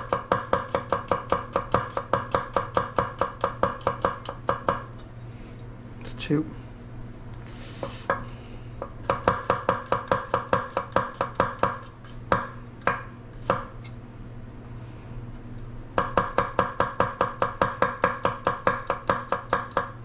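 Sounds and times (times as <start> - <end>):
knife chopping on wooden board: 0.0 - 4.9, 8.8 - 13.8, 16.0 - 20.0.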